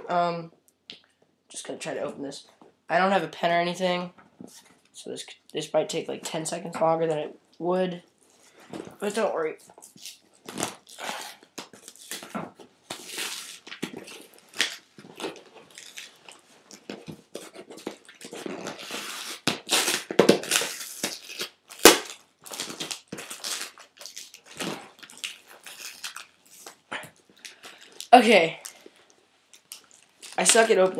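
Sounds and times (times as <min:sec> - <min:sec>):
packaging crinkling and rustling: 0:08.3 - 0:30.9.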